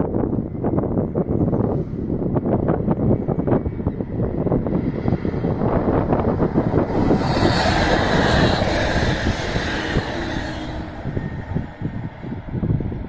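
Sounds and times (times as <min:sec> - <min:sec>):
wind buffeting microphone: 0:00.0 - 0:13.0
diesel train passing: 0:03.4 - 0:13.0.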